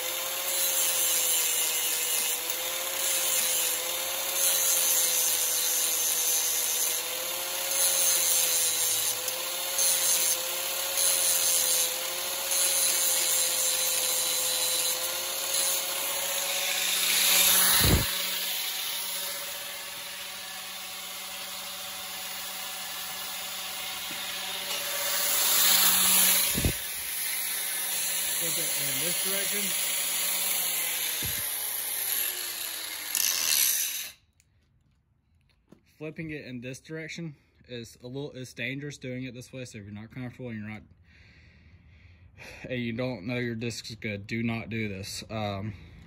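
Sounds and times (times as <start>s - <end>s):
angle grinder grinding metal: 0.0s - 34.2s.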